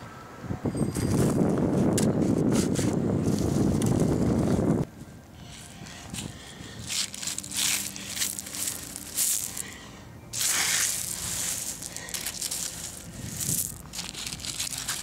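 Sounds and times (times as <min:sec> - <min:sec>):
pebbles and sand crunching: 0:06.8 - 0:15.0.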